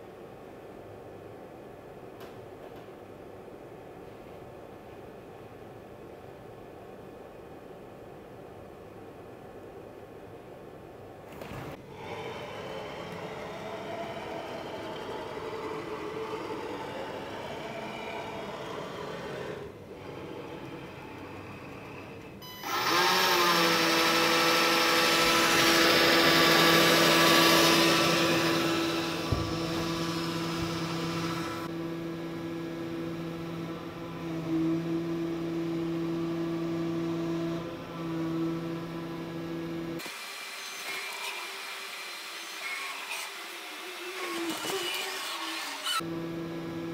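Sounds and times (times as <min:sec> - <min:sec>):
cnc machine whirring: 0:11.8 - 0:46.9
spindle whine: 0:12.0 - 0:40.0.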